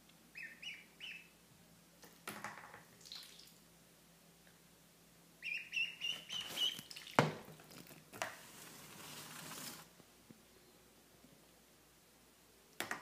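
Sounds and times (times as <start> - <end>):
duckling peeping: 0.3 - 1.4, 5.4 - 7.2
rustle: 7.6 - 10.0.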